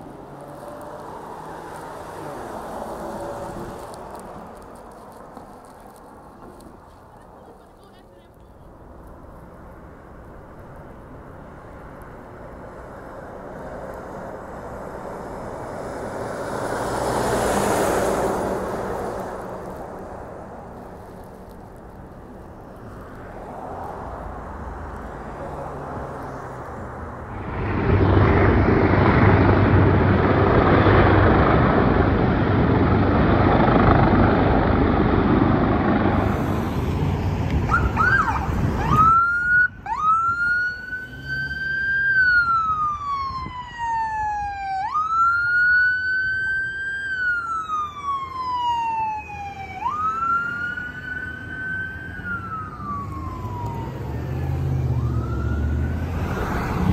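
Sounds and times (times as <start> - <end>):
loud rushing noise: 26.8 - 39.0
ambulance siren wailing: 37.6 - 56.9.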